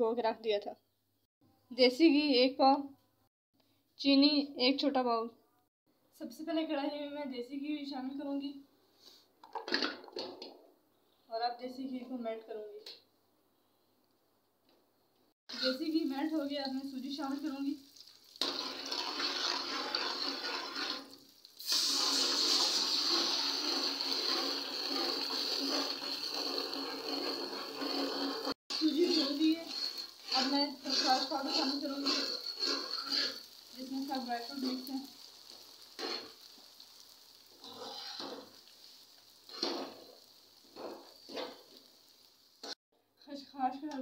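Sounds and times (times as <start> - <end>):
metal spatula stirring: 15.5 - 41.8
ghee sizzling: 15.5 - 42.8.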